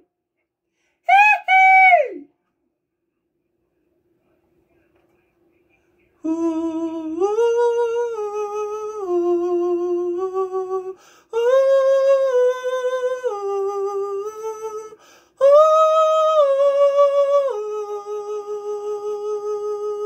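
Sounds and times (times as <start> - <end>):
man singing wordless notes: 6.2 - 20.0
man breathing: 11.0 - 11.3, 15.0 - 15.4.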